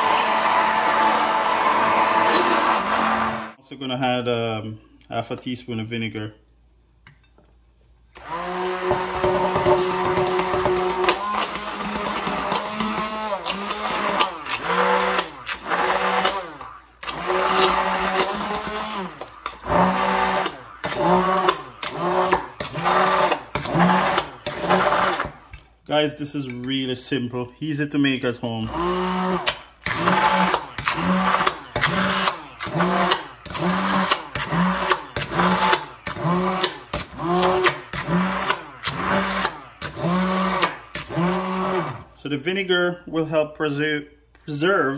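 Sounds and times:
immersion blender motor running: 0:00.0 - 0:03.6, 0:08.2 - 0:25.4, 0:28.7 - 0:42.1.

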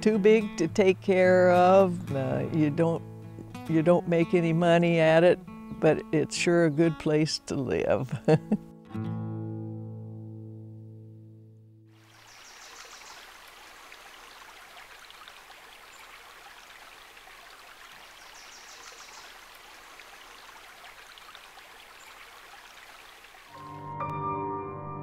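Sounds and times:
music: 0:00.0 - 0:12.0, 0:23.6 - 0:25.0
forest creek running: 0:11.9 - 0:23.6.

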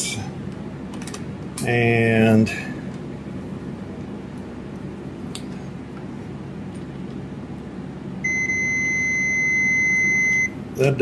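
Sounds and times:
continuity beeper high-pitched beep: 0:08.2 - 0:10.5.

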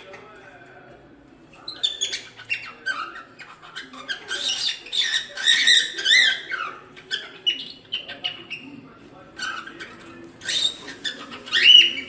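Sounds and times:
cockatiel chirping and whistling: 0:10.4 - 0:12.0.

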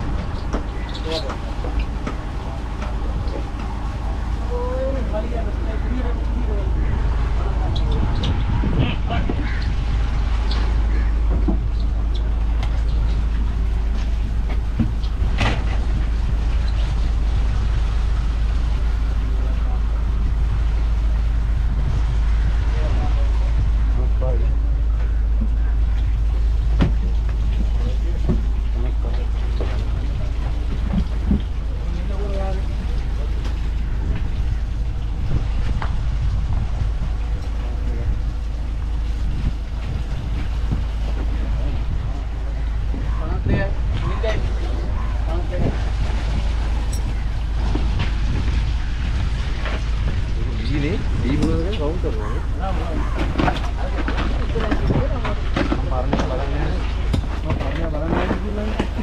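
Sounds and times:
low engine rumble: 0:00.0 - 0:59.0.

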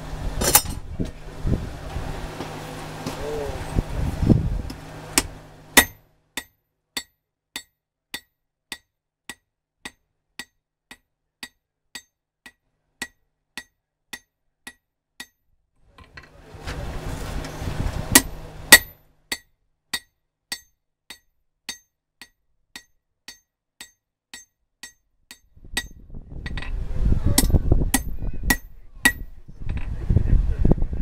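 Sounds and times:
low rumble: 0:00.0 - 0:05.8
hammer ringing on an anvil: 0:05.8 - 0:15.4, 0:18.2 - 0:25.9, 0:27.4 - 0:29.3.

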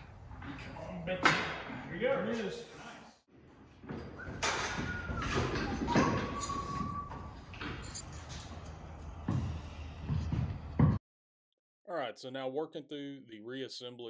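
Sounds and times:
workshop knocks and thuds: 0:03.8 - 0:07.8, 0:09.2 - 0:11.0
short squeaky tones: 0:04.2 - 0:08.6.

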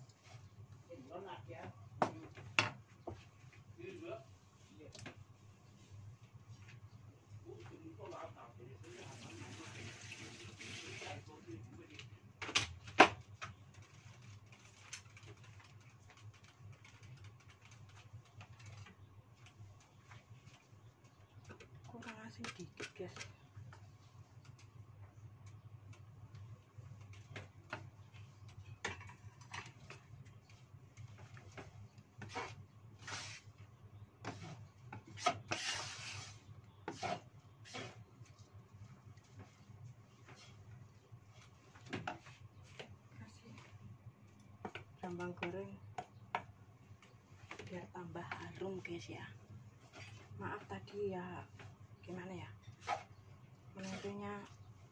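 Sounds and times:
noodles crackling in a wok: 0:12.0 - 0:54.9.

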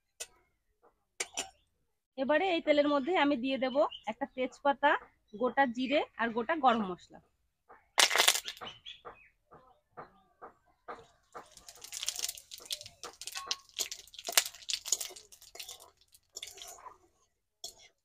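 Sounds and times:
spices crackling in hot oil: 0:08.0 - 0:08.6, 0:11.3 - 0:18.0
spatula scraping a pan: 0:11.4 - 0:18.0.

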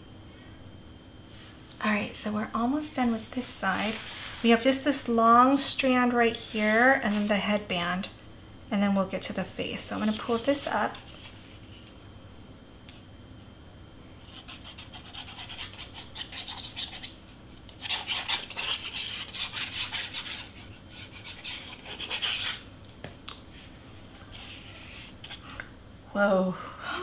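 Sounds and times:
paper rasping and crackling: 0:17.8 - 0:22.7.

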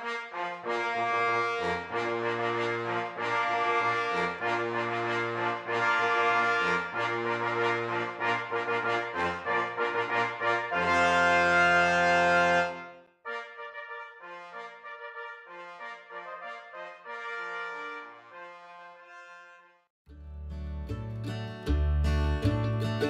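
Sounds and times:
brass instruments playing held notes: 0:00.0 - 0:19.8.

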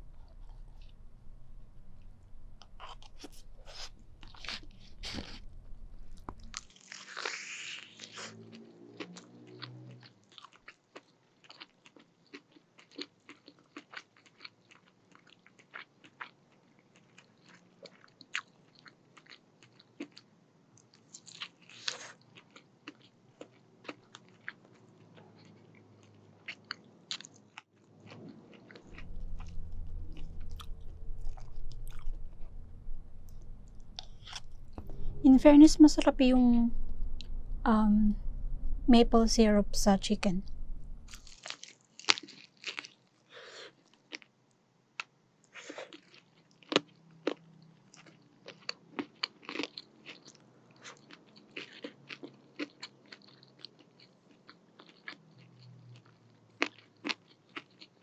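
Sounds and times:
soft chewing: 0:00.0 - 0:35.2, 0:41.0 - 0:58.0
crunching fried chicken: 0:06.2 - 0:32.6, 0:41.1 - 0:44.4, 0:45.0 - 0:58.0.

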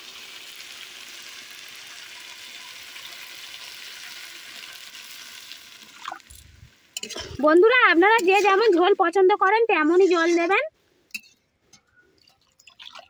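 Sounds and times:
food sizzling in hot oil: 0:00.0 - 0:10.4.

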